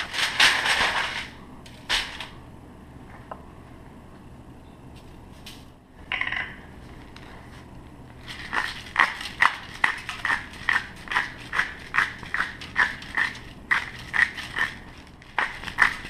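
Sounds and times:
seasoning shaker rattling: 8.2s - 16.0s.

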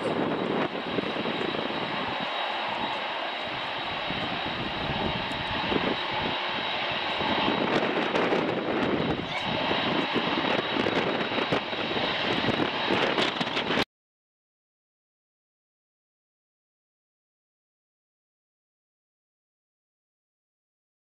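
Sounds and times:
turboprop engines running: 0.0s - 13.8s
wind buffeting microphone: 0.0s - 13.8s.

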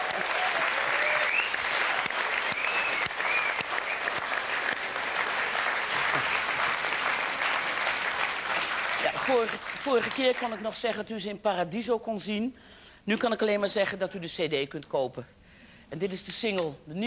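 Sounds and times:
studio audience applauding: 0.0s - 10.9s.

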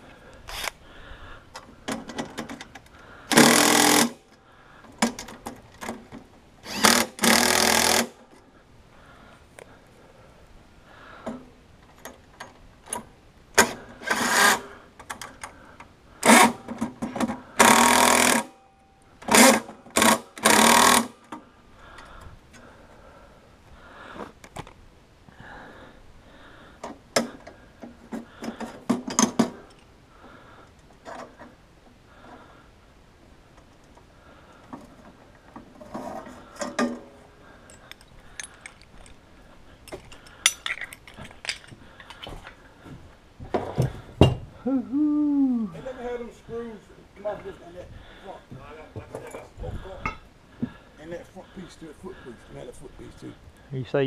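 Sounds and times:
clicks and knocks of parts: 1.5s - 7.8s, 11.2s - 18.5s, 26.8s - 29.9s, 33.5s - 39.2s, 39.8s - 42.6s
cordless drill running: 3.3s - 4.2s, 6.6s - 8.2s, 19.3s - 21.1s.

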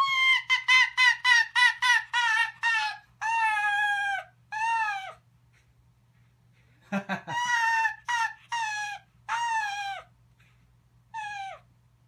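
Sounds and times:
fox yipping: 0.0s - 5.2s, 7.3s - 10.1s, 11.1s - 11.7s.

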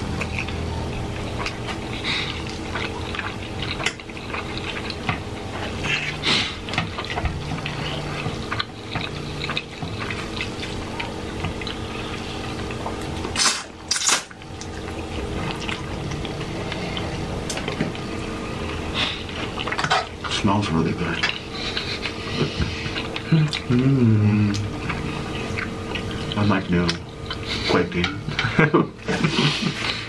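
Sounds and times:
chewing and lip-smacking: 0.0s - 20.4s, 21.0s - 27.7s.

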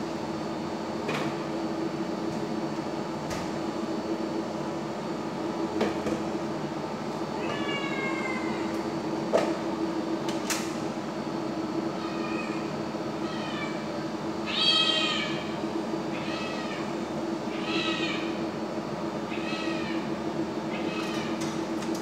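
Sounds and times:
cat meowing: 7.4s - 8.7s, 12.0s - 13.8s, 14.4s - 15.4s, 16.1s - 16.9s, 17.5s - 18.3s, 19.3s - 20.0s, 20.7s - 21.3s.

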